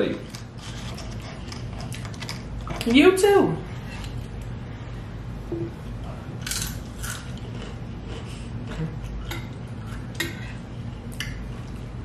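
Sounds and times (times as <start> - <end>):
chips being chewed: 6.4 - 9.0.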